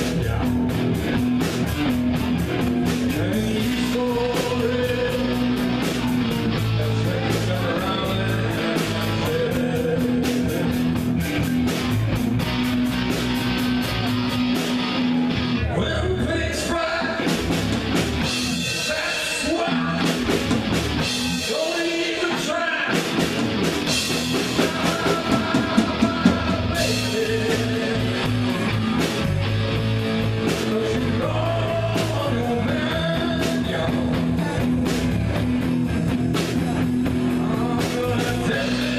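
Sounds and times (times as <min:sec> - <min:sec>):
live rock band playing: 0:00.0 - 0:38.9
person singing: 0:02.6 - 0:11.1, 0:18.2 - 0:29.3, 0:30.4 - 0:38.9.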